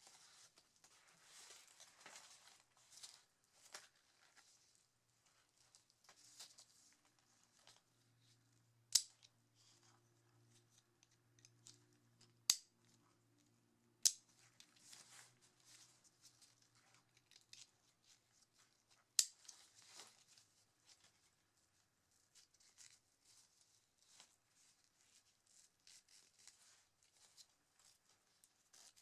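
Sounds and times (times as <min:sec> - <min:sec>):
nylon webbing rustling: 0:00.0 - 0:08.0.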